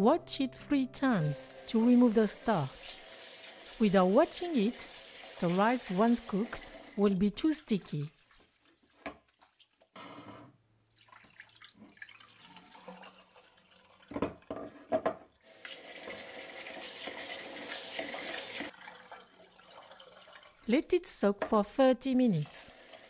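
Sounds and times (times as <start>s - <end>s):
tap water running into bowl: 1.2s - 7.0s, 11.0s - 14.6s, 15.4s - 20.7s.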